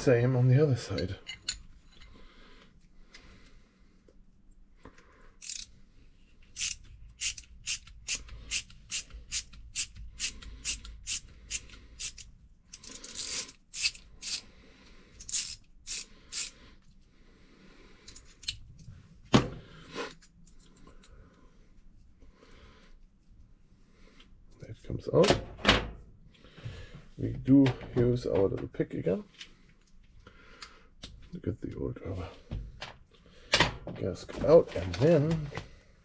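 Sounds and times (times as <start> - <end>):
screwdriver clicking strokes: 5.4 - 5.7, 6.6 - 14.4, 15.2 - 16.6.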